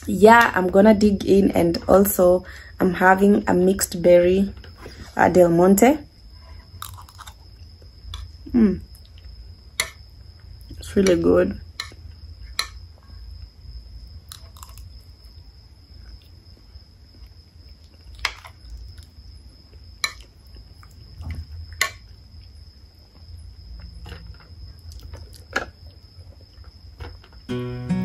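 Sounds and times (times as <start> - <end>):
person chewing food: 6.5 - 8.3, 14.3 - 15.4, 16.0 - 27.4.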